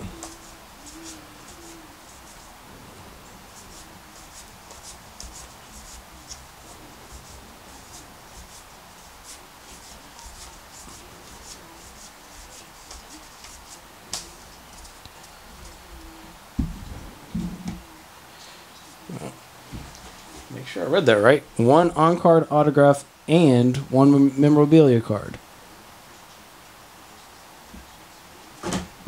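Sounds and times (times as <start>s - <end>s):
cards flicking and rubbing: 0.0s - 2.5s, 3.6s - 16.2s.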